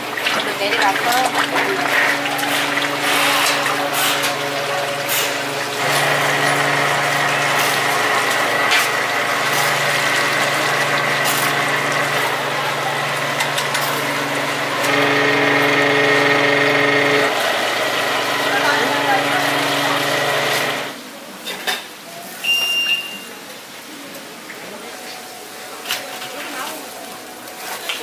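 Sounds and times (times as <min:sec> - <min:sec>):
oil sizzling in wok: 0:00.0 - 0:15.7
pump motor hum with whine: 0:00.0 - 0:21.0.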